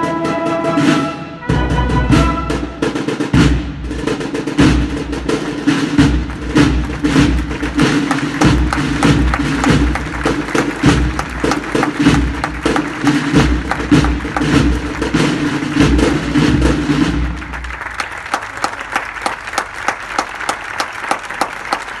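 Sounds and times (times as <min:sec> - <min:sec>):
applause: 0:05.3 - 0:22.0.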